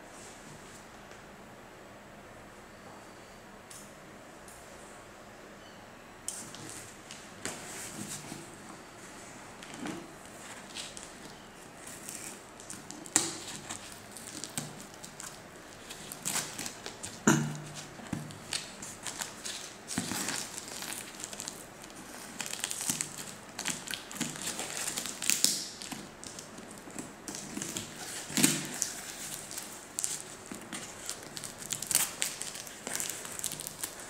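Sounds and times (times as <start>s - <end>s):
crinkling and tearing: 9.6s - 34.0s.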